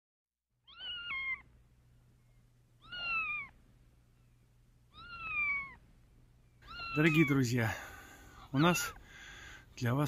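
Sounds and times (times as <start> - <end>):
kitten mewing: 0.7 - 1.5, 2.8 - 3.6, 4.9 - 5.8, 6.6 - 9.0.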